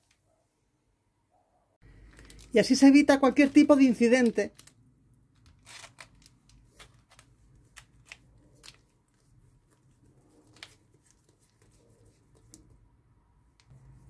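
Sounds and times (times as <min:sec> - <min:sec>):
plastic bag crinkling and clicks: 0:02.0 - 0:02.5, 0:04.2 - 0:08.9.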